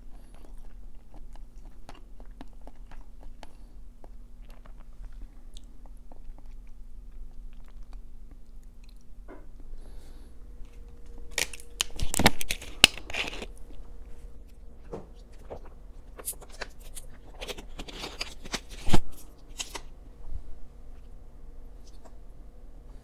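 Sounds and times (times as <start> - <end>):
plastic bottle crinkling: 10.7 - 13.6, 14.9 - 19.8.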